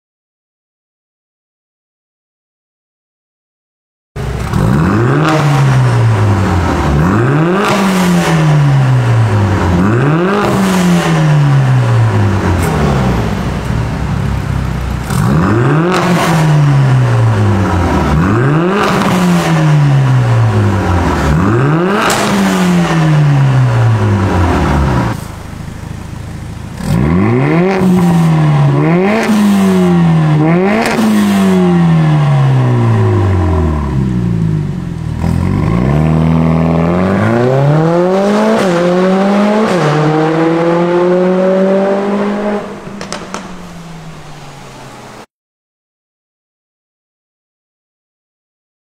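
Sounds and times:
car engine revving: 0:04.2 - 0:45.3
car engine idling: 0:11.5 - 0:15.4, 0:23.3 - 0:29.2, 0:42.6 - 0:45.2.

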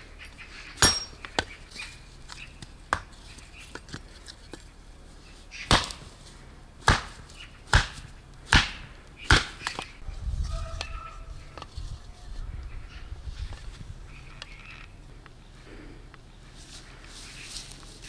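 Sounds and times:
heavy chopping blows: 0:05.7 - 0:06.1, 0:06.8 - 0:09.9.

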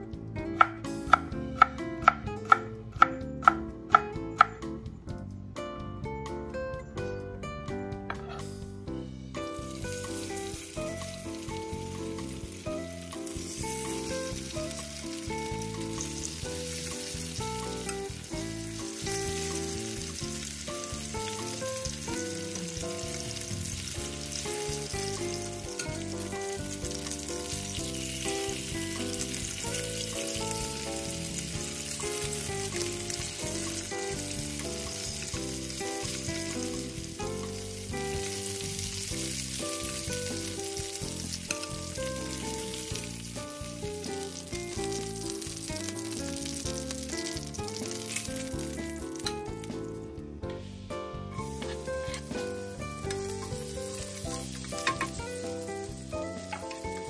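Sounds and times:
background music: 0:00.0 - 0:57.0
meat sizzling in a pan: 0:09.2 - 0:50.0, 0:51.3 - 0:57.0
metal tongs turning meat: 0:23.4 - 0:40.0, 0:44.1 - 0:49.5, 0:51.4 - 0:57.0.

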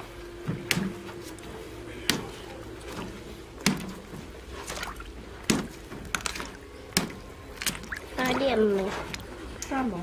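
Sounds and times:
water sloshing and dripping: 0:00.5 - 0:10.0.

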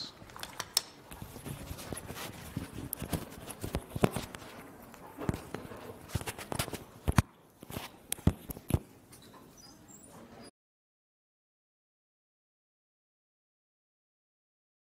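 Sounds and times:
clicks and knocks near microphone: 0:00.3 - 0:09.5.

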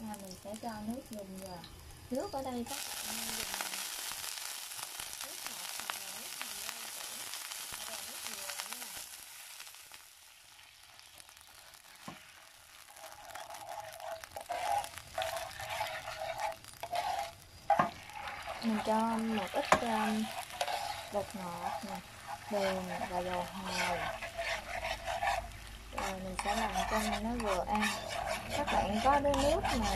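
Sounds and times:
hot oil sizzling in a frying pan: 0:00.0 - 0:29.9
metal spoon scraping a pan: 0:12.9 - 0:29.9.

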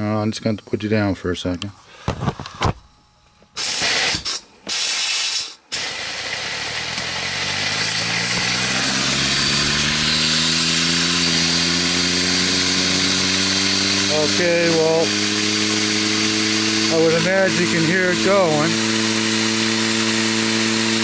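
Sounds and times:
air hissing blasts: 0:03.5 - 0:21.0
turbine whine rising in pitch: 0:05.7 - 0:21.0.

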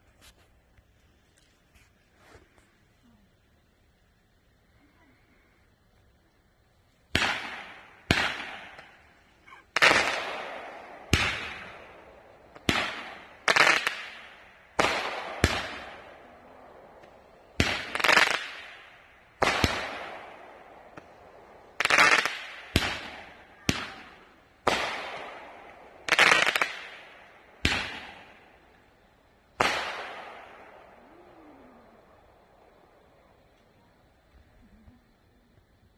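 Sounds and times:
fireworks bangs with echo: 0:07.1 - 0:28.9, 0:29.5 - 0:31.3.

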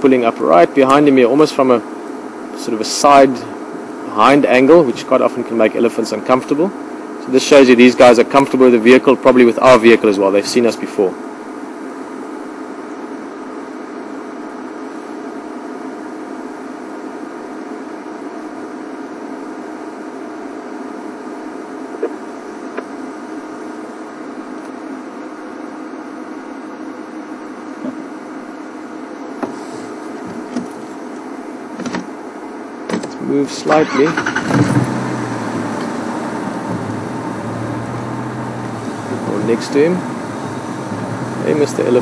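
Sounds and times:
vehicle engine idling: 0:33.8 - 0:42.0.

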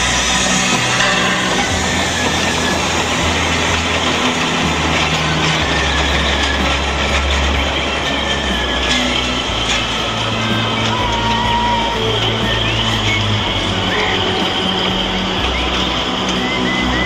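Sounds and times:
loud hiss of steam: 0:00.0 - 0:17.0
steam locomotive pulling away: 0:00.0 - 0:17.0.

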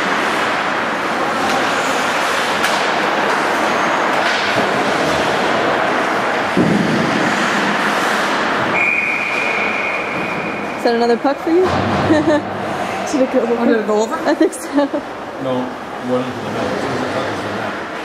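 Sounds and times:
hockey sticks and pucks clacking: 0:00.0 - 0:10.8
skates on ice: 0:00.0 - 0:10.8
heavy knock: 0:11.6 - 0:12.6.

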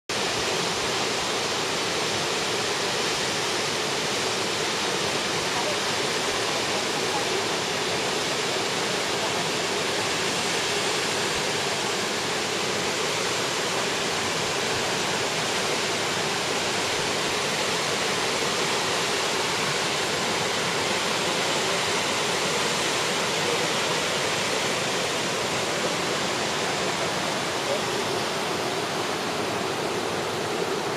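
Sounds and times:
waterfall rushing: 0:00.1 - 0:30.9.

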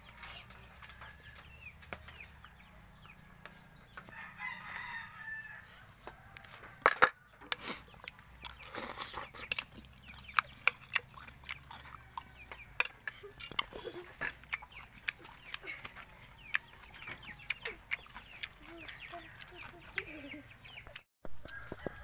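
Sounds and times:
rooster crowing: 0:02.7 - 0:06.8, 0:21.4 - 0:22.0.

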